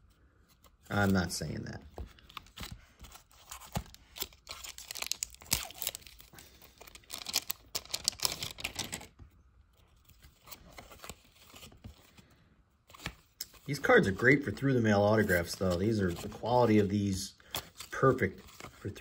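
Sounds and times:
cards rustling: 0:00.2 - 0:19.0
foil wrapper tearing and crinkling: 0:03.3 - 0:09.1.

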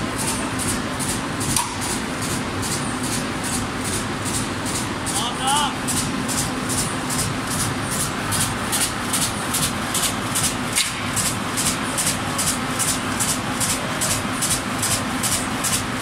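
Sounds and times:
machine mechanical hum: 0:00.0 - 0:16.0.

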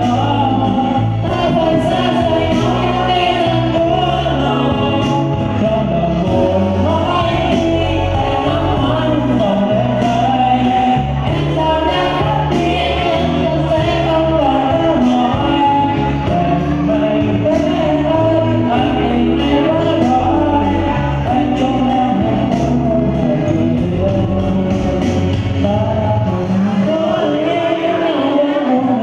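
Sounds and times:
backing music with bass and beat: 0:00.0 - 0:29.0
man singing into microphone: 0:00.0 - 0:29.0.

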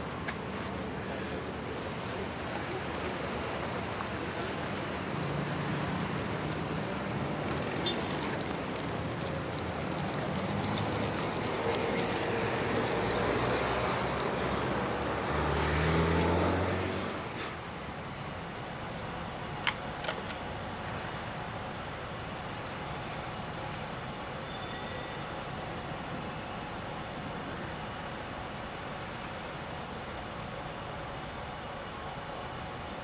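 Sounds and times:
road traffic noise: 0:00.0 - 0:33.0
vehicle engine passing close: 0:05.4 - 0:17.5.

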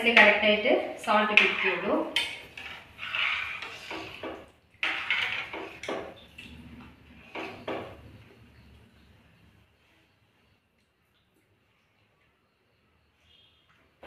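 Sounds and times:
metal spoon scraping a pot: 0:01.1 - 0:08.1.

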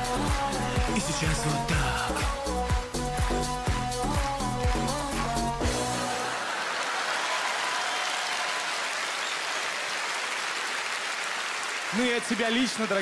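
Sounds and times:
pop backing track: 0:00.0 - 0:06.3
audience applauding: 0:03.2 - 0:13.0.

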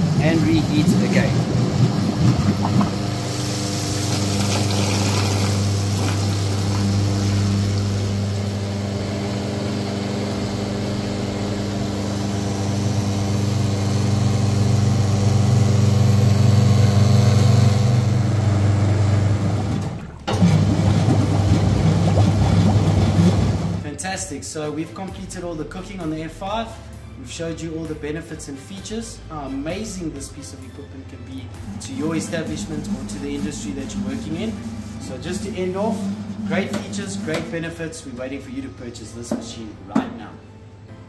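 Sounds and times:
oil churning and bubbling: 0:00.0 - 0:23.8, 0:31.4 - 0:38.4
pump humming: 0:00.0 - 0:23.8, 0:31.4 - 0:38.8.

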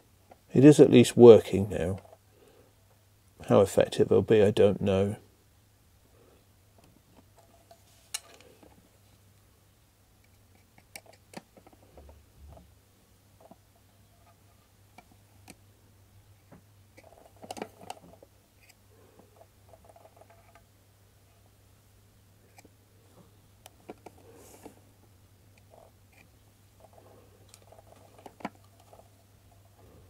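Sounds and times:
plastic parts clicking and knocking: 0:10.2 - 0:12.7, 0:16.5 - 0:20.7, 0:23.6 - 0:24.8, 0:25.5 - 0:29.2.

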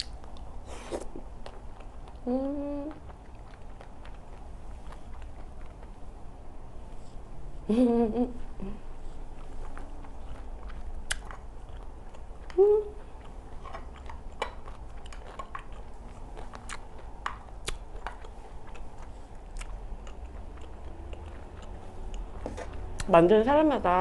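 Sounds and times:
person chewing: 0:00.0 - 0:06.3, 0:08.8 - 0:23.1
wet mouth clicks and smacks: 0:10.0 - 0:12.6, 0:13.2 - 0:18.9
short voiced hum: 0:12.6 - 0:13.0.

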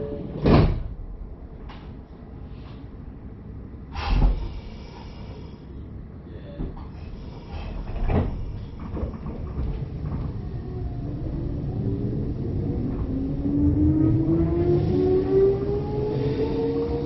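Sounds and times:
train wheels rumbling: 0:03.4 - 0:17.0
train clunk: 0:06.5 - 0:11.5
train motors whining: 0:07.2 - 0:17.0.

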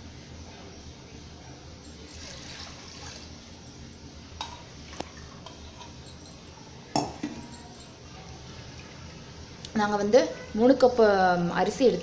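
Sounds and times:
light metal clinks: 0:01.8 - 0:02.4, 0:03.5 - 0:08.3
liquid pouring and splashing: 0:02.1 - 0:03.3.

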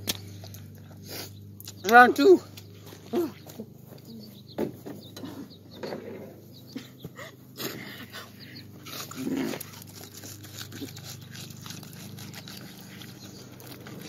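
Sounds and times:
wet biting and chewing: 0:00.0 - 0:01.9, 0:08.6 - 0:14.0.

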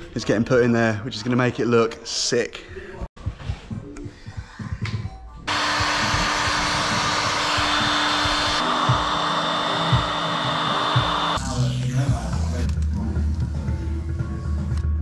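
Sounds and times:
heat gun blowing air: 0:05.5 - 0:11.4.

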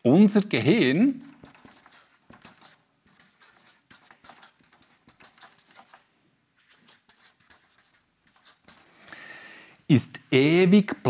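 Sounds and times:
marker pen writing on paper: 0:01.1 - 0:09.1.

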